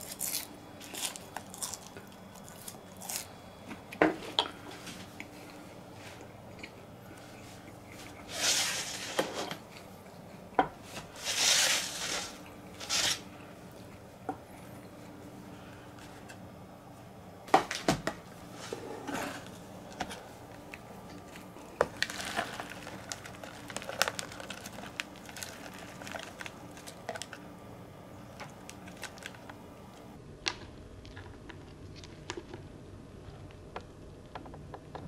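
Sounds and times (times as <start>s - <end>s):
worms crawling crackling rustle: 21.2s - 27.4s, 28.3s - 30.0s.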